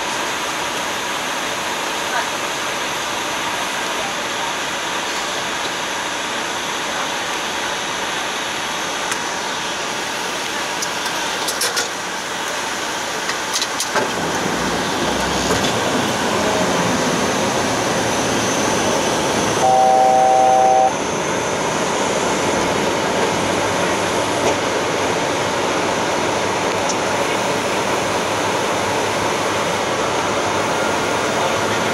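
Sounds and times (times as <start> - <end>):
jet airflow and engine noise: 0.0 - 31.9
cockpit alert tone: 19.6 - 20.9.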